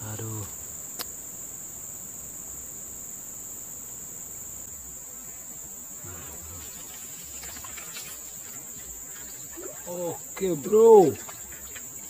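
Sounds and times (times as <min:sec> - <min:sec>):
insect chorus shrilling: 0:00.0 - 0:12.0
water splashing and dripping: 0:06.1 - 0:12.0.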